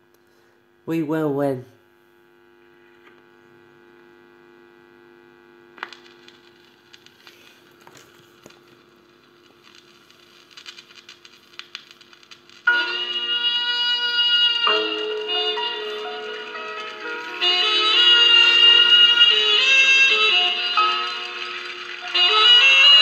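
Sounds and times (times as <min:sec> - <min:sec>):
electrical hum: 0:00.0 - 0:23.0
stylus crackles and pops: 0:05.7 - 0:23.0
loud music from record: 0:12.7 - 0:23.0.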